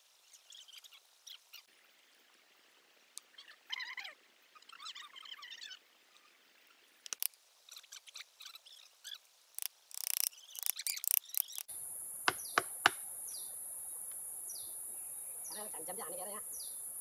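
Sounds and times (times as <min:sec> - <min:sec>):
high insect hiss: 0:04.5 - 0:17.0
wooden mallet knocking on tree: 0:12.3 - 0:13.0.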